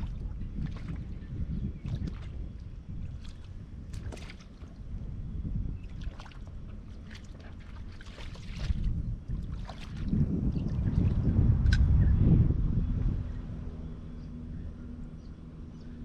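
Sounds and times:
river water lapping and splashing: 0.0 - 11.8
wind rumbling on microphone: 0.0 - 16.0.

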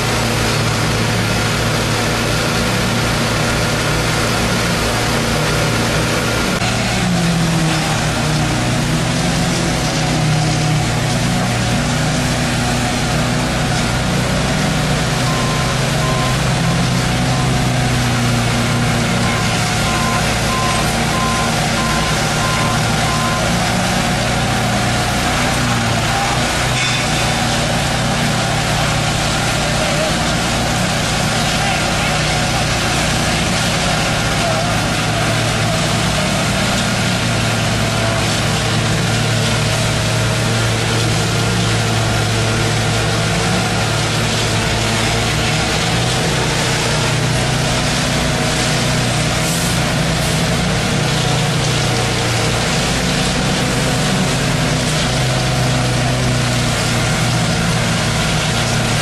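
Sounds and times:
concrete mixer truck: 0.0 - 59.0
paving machinery engines running: 0.0 - 59.0
vehicle reversing beeper: 14.6 - 24.3.

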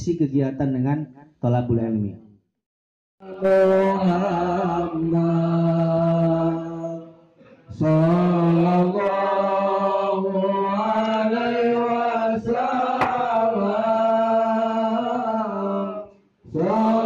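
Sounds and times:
man chanting: 3.2 - 7.0.

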